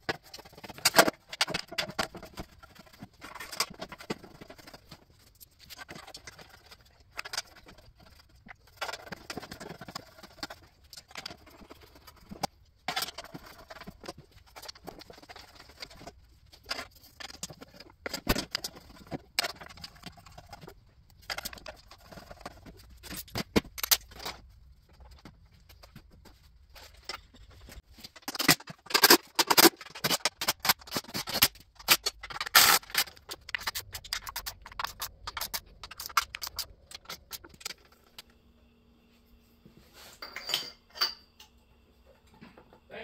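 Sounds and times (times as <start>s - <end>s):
metal tools clicking and tapping: 40.2s - 41.6s.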